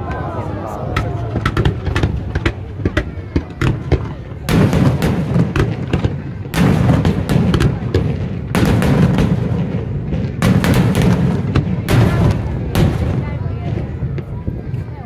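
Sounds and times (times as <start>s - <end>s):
fireworks booming: 0.0s - 14.8s
fireworks cracks: 0.8s - 14.4s.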